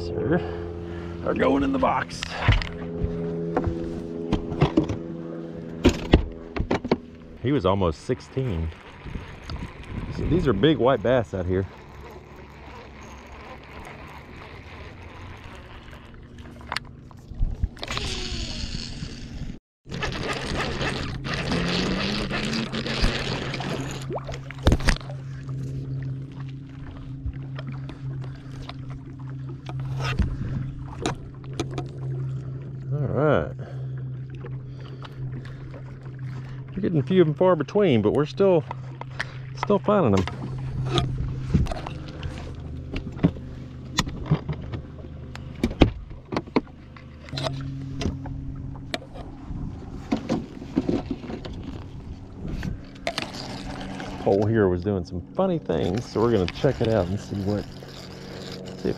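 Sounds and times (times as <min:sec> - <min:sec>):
boat motor humming: 0:00.0 - 0:58.9.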